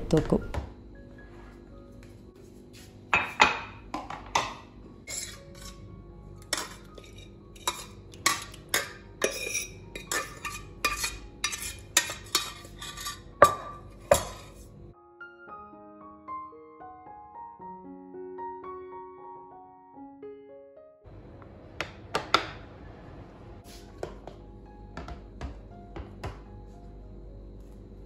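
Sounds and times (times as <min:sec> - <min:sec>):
metal spoon scraping steel pot: 0:05.0 - 0:14.6.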